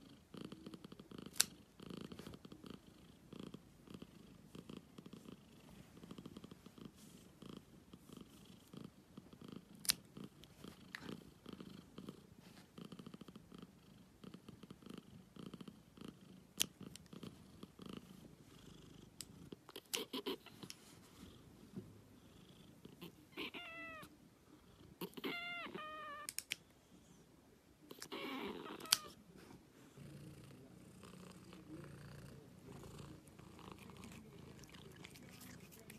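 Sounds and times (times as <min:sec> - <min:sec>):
cat purring: 0:00.0 - 0:35.9
cat mewing: 0:23.0 - 0:24.1, 0:25.0 - 0:26.4, 0:27.9 - 0:29.2.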